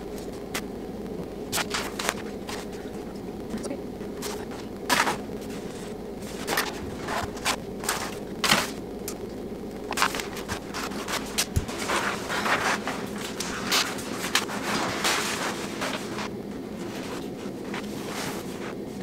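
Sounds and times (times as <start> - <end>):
wallpaper crinkling and crackling: 0.0 - 19.0.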